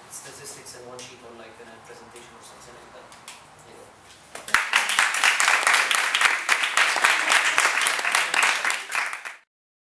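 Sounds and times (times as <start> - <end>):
audience applauding: 4.5 - 9.5.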